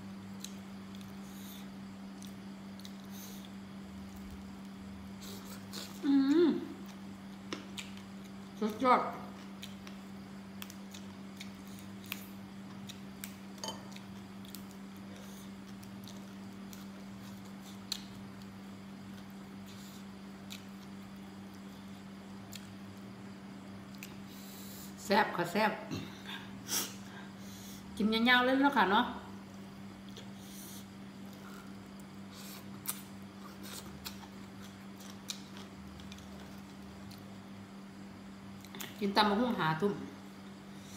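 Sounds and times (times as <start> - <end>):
steady low hum: 0.0 - 40.9
soft chewing and mouth noises: 0.3 - 25.0, 29.5 - 37.9
chewing: 32.4 - 37.3.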